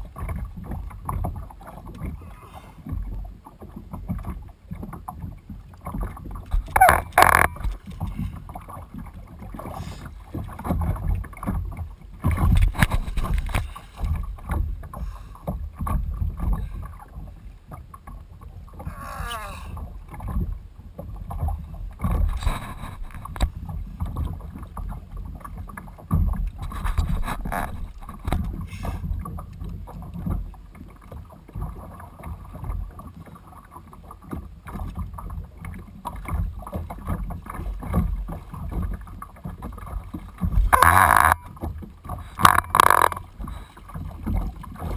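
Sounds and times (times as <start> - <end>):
water slapping against plastic hull: 2.8 - 17.1, 19.8 - 32.9.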